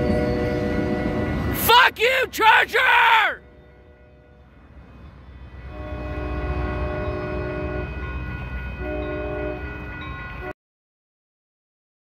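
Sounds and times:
train air horn blasts: 0.0 - 1.6, 3.4 - 4.4, 5.6 - 10.5
train passing rumble: 0.0 - 10.6.

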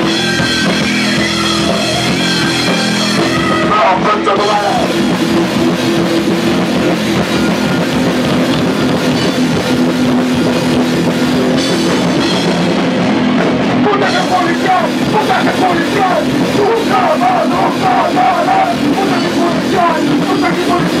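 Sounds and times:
bass guitar: 0.0 - 21.0
distorted electric guitar: 0.0 - 21.0
drum kit: 0.0 - 21.0
person shouting vocals: 13.9 - 21.0.

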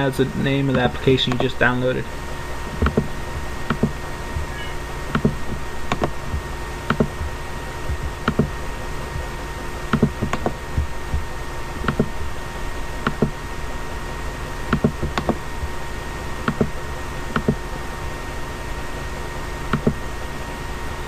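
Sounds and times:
faint electrical whine: 0.0 - 21.0
mouse buttons clicking: 3.7 - 6.1, 6.9 - 7.3, 7.9 - 8.5, 9.9 - 10.6, 13.0 - 13.3.

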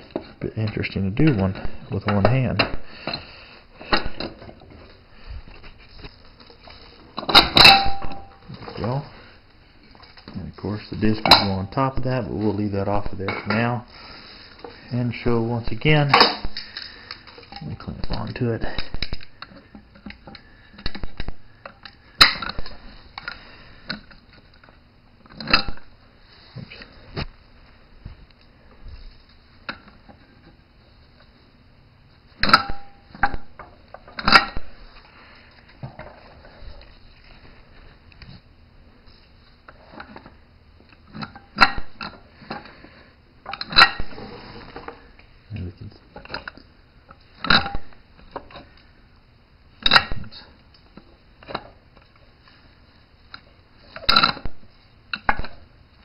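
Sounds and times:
steel parts clinking and knocking: 7.2 - 8.4
metal clanks: 7.2 - 8.8, 11.0 - 11.8
metal clicks and clanks: 32.4 - 34.6.

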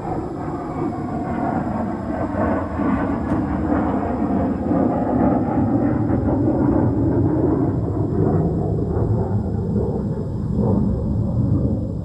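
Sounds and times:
fighter jets rumbling overhead: 0.0 - 12.0.

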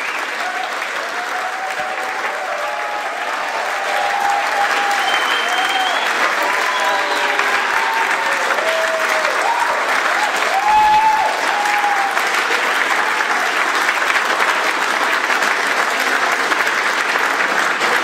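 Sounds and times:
people whooping and cheering: 0.0 - 14.0
crowd clapping: 0.0 - 18.0.

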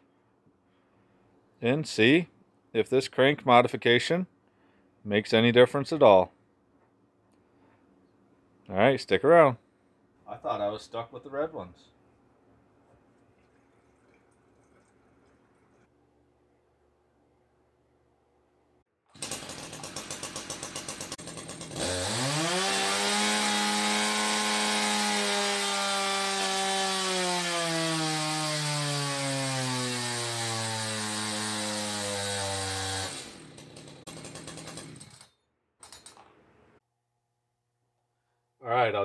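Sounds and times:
chainsaw engine revving: 19.1 - 35.2.

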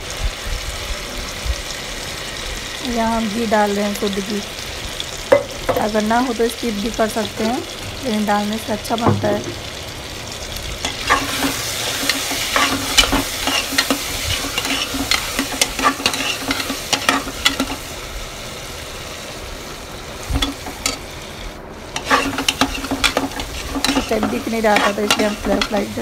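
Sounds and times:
vegetables sizzling in oil: 0.0 - 26.0
spatula scraping a pot: 10.9 - 17.8, 22.0 - 25.9.

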